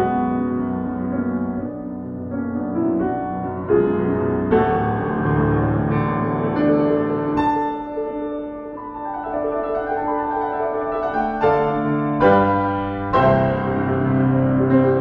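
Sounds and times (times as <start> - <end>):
slow classical piano: 0.0 - 15.0.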